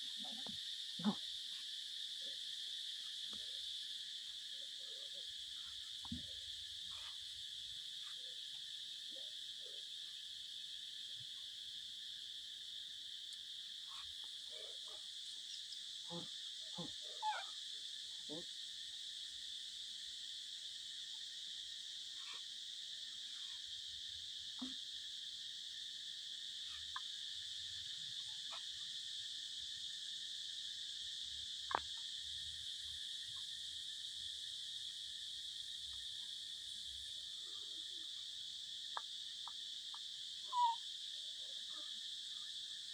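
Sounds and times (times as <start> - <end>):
insects droning: 0.0 - 42.9
short faint calls: 40.4 - 40.8.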